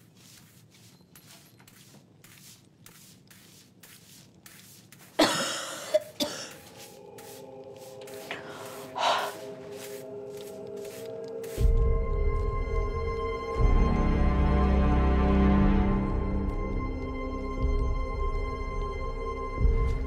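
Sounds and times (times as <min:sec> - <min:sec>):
soft sustained music: 0:06.1 - 0:20.0.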